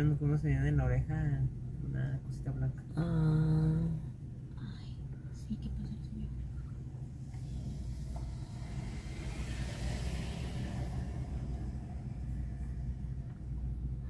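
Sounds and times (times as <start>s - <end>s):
car engine and road noise: 6.2s - 14.0s
hiss: 7.1s - 13.6s.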